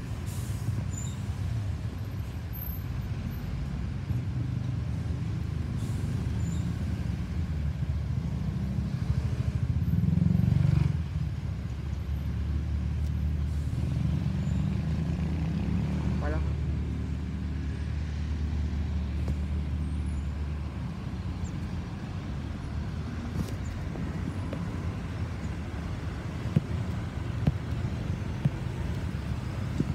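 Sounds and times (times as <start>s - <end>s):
distant turboprop aircraft rumble: 11.0s - 29.9s.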